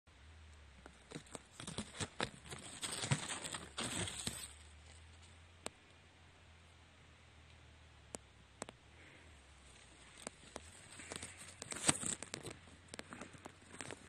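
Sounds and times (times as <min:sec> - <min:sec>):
close rustling and crackling: 0:00.7 - 0:05.8, 0:08.6 - 0:14.0
small clicks and scrapes: 0:00.8 - 0:05.8, 0:09.6 - 0:14.0.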